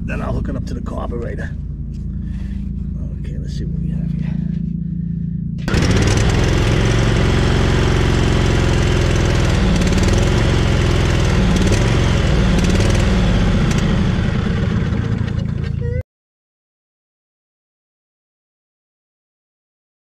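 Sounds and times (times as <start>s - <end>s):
mower engine running: 4.1s - 16.0s.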